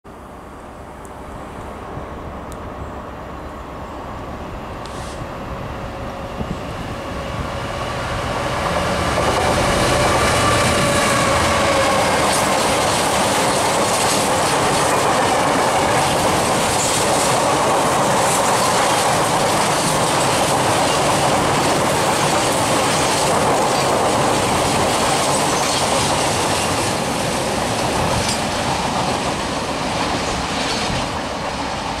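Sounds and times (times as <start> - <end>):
diesel locomotive engine drone: 0.1 - 32.0
train wheels clicking over rail joints: 8.6 - 32.0.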